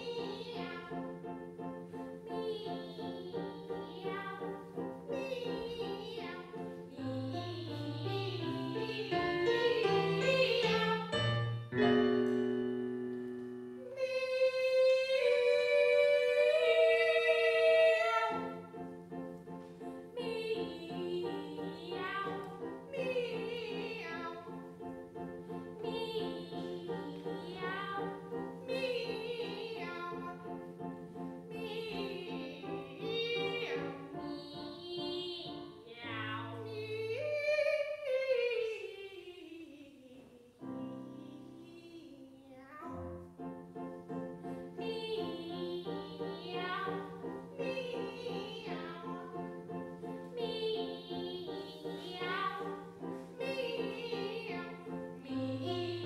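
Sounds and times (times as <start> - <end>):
piano accompaniment: 0.0 - 39.0, 40.5 - 56.0.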